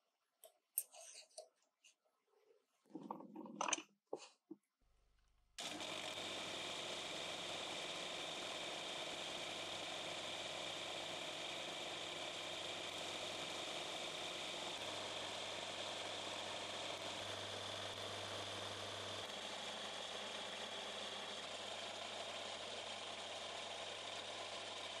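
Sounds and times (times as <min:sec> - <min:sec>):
small machine motor running: 0:05.6 - 0:25.0.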